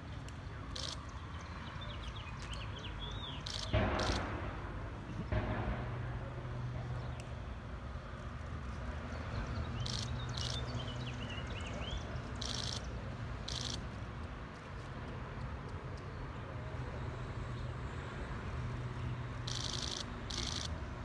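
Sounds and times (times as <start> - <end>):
low rumble of traffic: 0.0 - 21.0
birds chirping: 0.4 - 4.3, 8.6 - 13.8.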